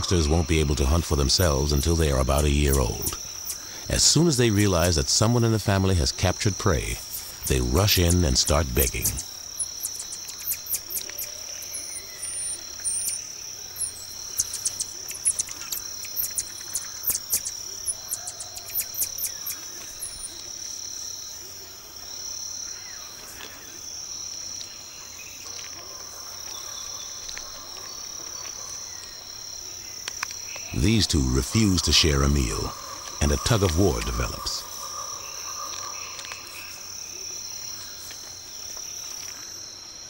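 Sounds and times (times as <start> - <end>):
insect drone: 0.0 - 40.0
marmoset chirps and squeaks: 9.0 - 11.3, 13.8 - 20.2.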